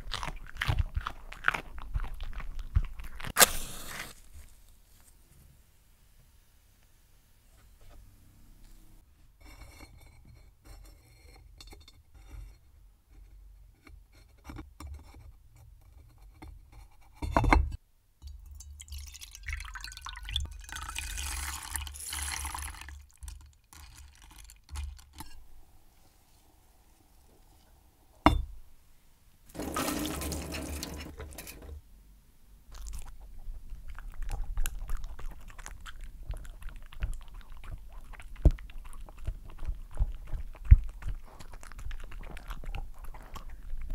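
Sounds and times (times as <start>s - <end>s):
liquid pouring into container: 18.6s - 25.0s, 29.5s - 31.2s.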